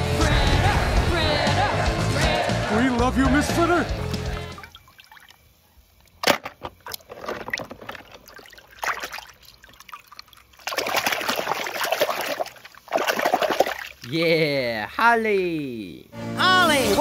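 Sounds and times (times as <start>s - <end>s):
water splashing in a tub: 4.4s - 14.1s.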